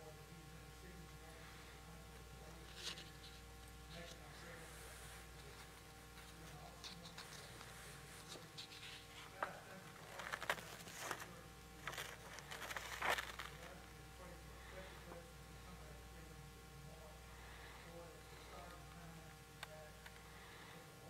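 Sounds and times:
steady low hum: 0.0s - 21.0s
faint rustling: 2.4s - 15.2s.

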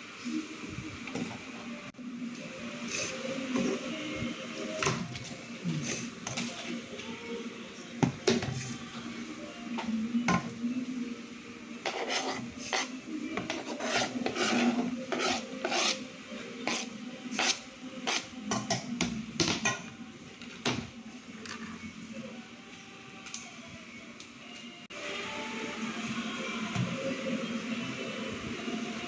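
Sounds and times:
utensil scraping cutting board: 11.8s - 16.0s, 16.6s - 18.2s.

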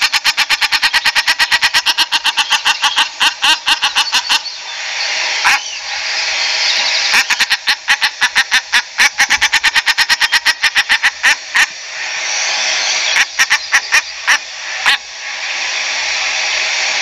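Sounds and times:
duck calling rapidly: 0.0s - 4.5s, 5.4s - 5.8s, 7.1s - 11.8s, 13.1s - 15.0s
steady hiss: 0.0s - 17.0s.

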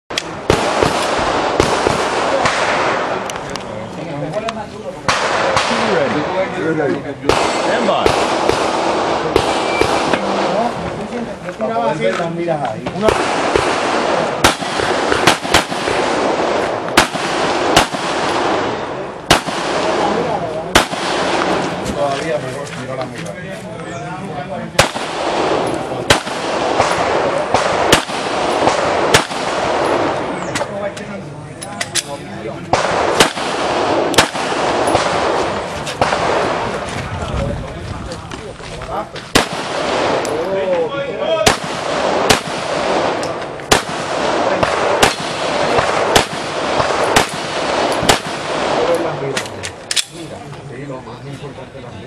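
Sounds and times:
faint gunshots: 0.1s - 3.5s, 5.0s - 10.8s, 12.8s - 22.4s, 24.7s - 30.9s, 32.6s - 37.0s, 39.2s - 50.3s
handgun shots: 13.0s - 18.6s, 24.8s - 30.7s, 32.7s - 36.5s, 41.4s - 50.2s.

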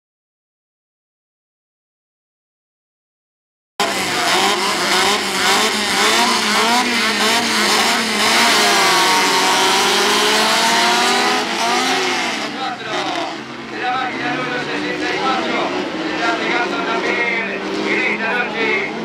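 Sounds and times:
race car engines revving: 3.8s - 19.0s.

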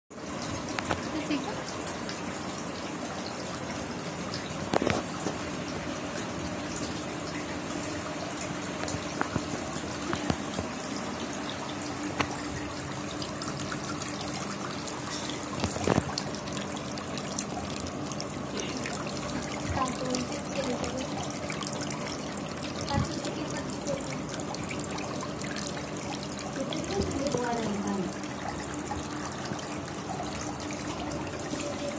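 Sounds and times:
faint steady hum: 0.2s - 31.9s
fountain water falling into tray: 0.2s - 31.9s.

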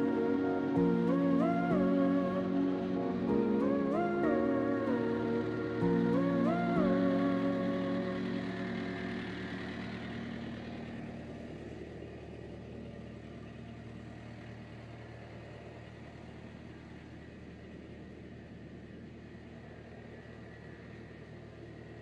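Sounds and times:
background music: 0.0s - 13.0s
vehicle engine humming: 0.0s - 22.0s.

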